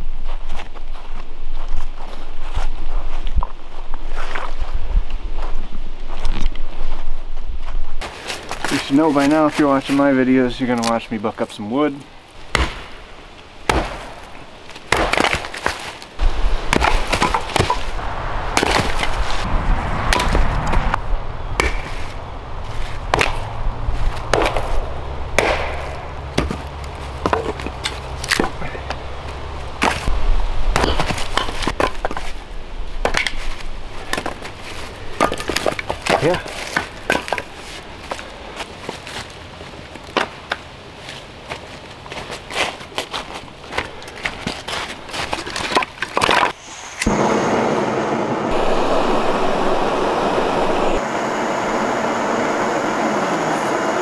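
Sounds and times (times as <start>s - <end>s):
wood pieces clattering on leaves: 8.0s - 11.1s, 14.2s - 18.0s, 30.8s - 46.6s
axe chopping wood: 12.5s - 13.0s, 13.6s - 14.3s, 14.9s - 15.9s, 16.7s - 18.0s, 18.6s - 19.2s, 20.1s - 20.4s, 21.6s - 22.0s, 23.0s - 23.5s, 24.2s - 29.0s, 29.8s - 30.1s, 30.7s - 32.3s, 33.0s - 33.5s, 34.1s - 34.4s
low steady rumble: 47.1s - 53.2s.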